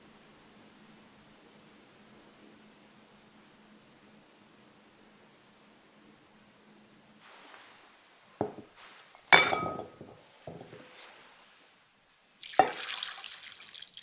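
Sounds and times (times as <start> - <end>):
glass bowl clinking: 8.4 - 8.7, 9.3 - 10.8, 12.5 - 13.2
water pouring into bowl: 12.4 - 14.0.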